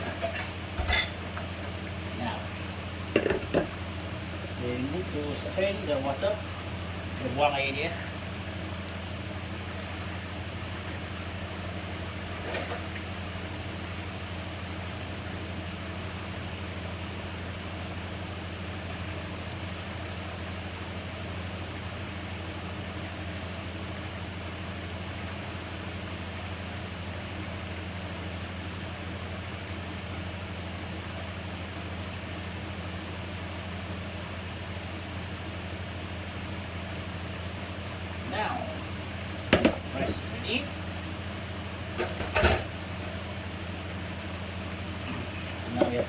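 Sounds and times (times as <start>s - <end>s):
steam hissing from pots: 2.1s - 3.7s, 4.6s - 6.6s, 38.2s - 39.0s, 39.6s - 40.8s, 45.0s - 46.0s.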